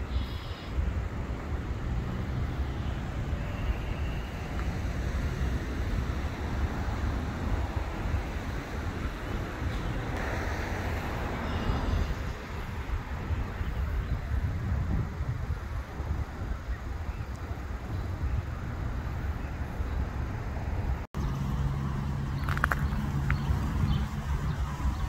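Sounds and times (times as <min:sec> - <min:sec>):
road traffic rumble: 0:00.0 - 0:25.0
car passing: 0:01.1 - 0:13.1.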